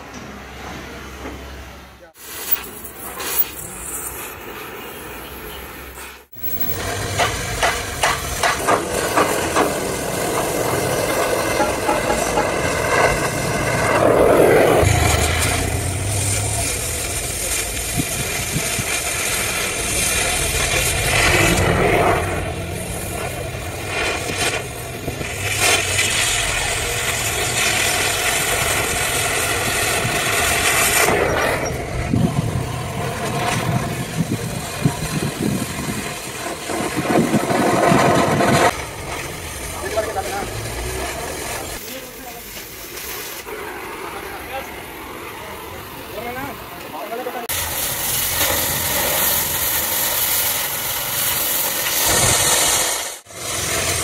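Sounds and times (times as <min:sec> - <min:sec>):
cutting torch hissing: 0:02.1 - 0:54.0.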